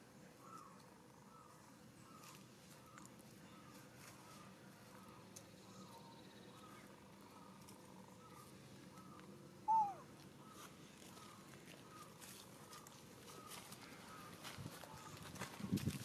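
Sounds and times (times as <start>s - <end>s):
faint chirping: 0.0s - 14.3s
macaque coo call: 6.7s - 10.7s.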